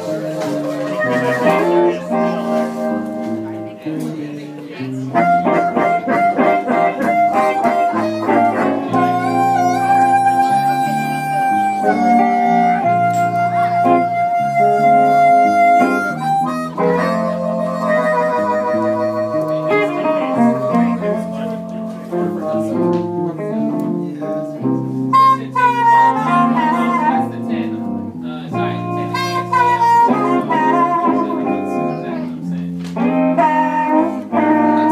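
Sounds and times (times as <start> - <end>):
amplified harmonica: 0.0 - 3.7, 4.8 - 21.6, 25.1 - 27.7, 28.5 - 34.9
walking bass line: 0.0 - 3.9
blues band playing: 0.0 - 34.9
electric guitar: 0.0 - 34.9.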